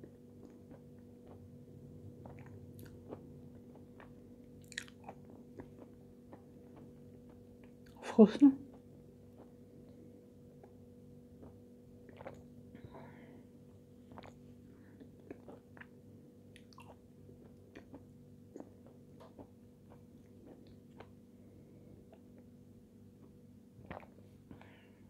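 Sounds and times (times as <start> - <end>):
steady low hum: 0.0 - 25.0
mouth sipping and chewing sounds: 2.2 - 8.0, 11.4 - 12.5, 14.1 - 21.2, 23.8 - 24.7.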